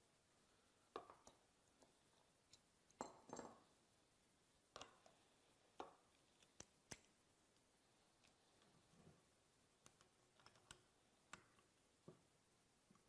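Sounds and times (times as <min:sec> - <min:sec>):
faint clicks and taps of metal parts: 0:00.9 - 0:03.7, 0:04.7 - 0:08.8, 0:09.8 - 0:12.3.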